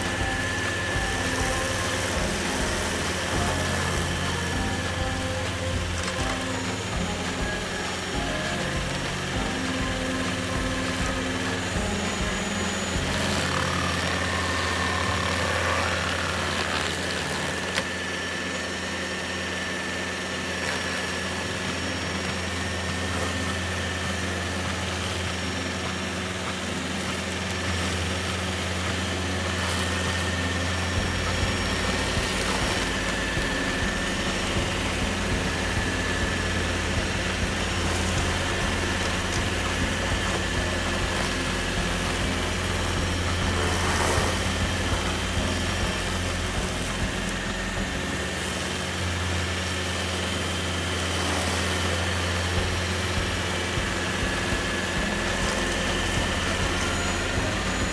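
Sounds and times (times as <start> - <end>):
stump grinder grinding: 0.0 - 57.9.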